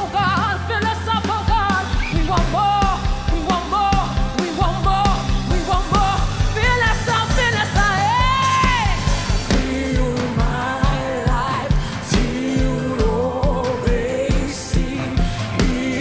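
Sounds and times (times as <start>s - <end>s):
bass line: 0.0s - 16.0s
steady drum beat: 0.0s - 16.0s
woman singing gospel: 0.0s - 16.0s.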